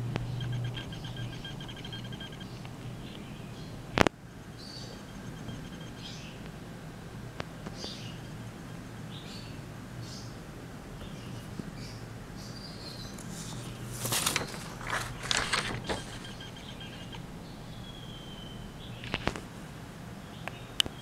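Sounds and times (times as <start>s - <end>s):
steady low hum: 0.0s - 21.0s
rustling handling noise: 13.0s - 17.2s.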